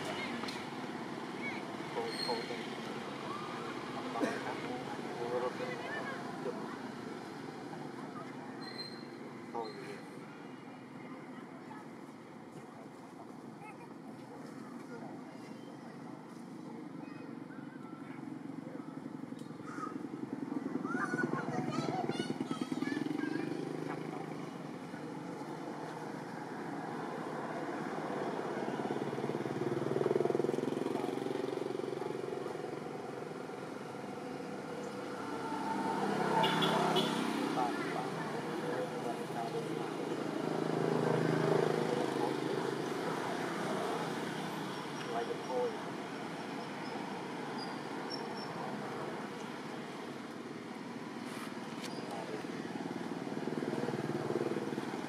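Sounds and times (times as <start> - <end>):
distant motor traffic: 0.0 - 55.0
vehicle engine passing: 20.4 - 55.0.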